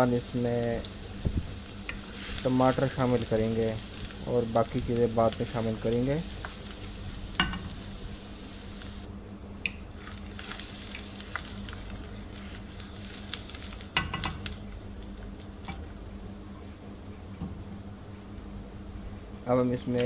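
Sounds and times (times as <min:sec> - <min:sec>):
onions sizzling in hot oil: 0:00.0 - 0:09.1, 0:09.9 - 0:15.8.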